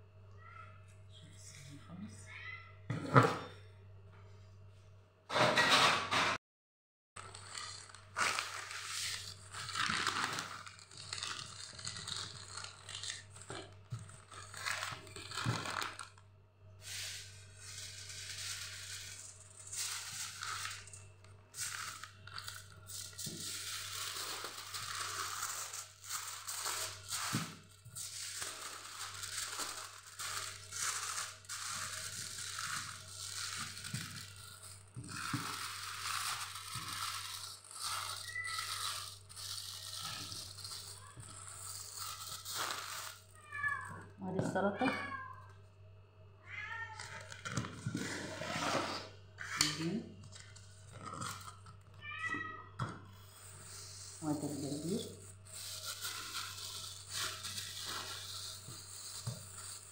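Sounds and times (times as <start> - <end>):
foil and paper crinkling: 7.2 - 16.2, 16.8 - 43.4, 53.2 - 59.9.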